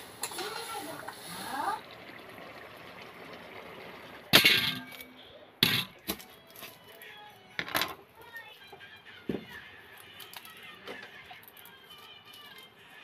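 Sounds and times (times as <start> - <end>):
onions clanging into metal colander: 4.3 - 6.7.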